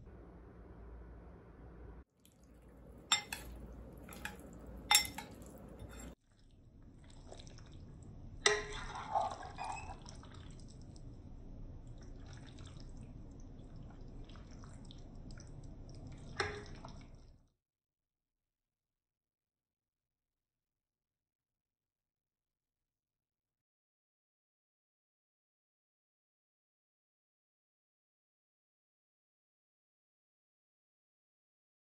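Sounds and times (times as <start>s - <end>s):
wet squelching stirring: 2.2s - 17.4s
spoon clinking against bowl: 3.1s - 6.2s, 8.5s - 10.0s.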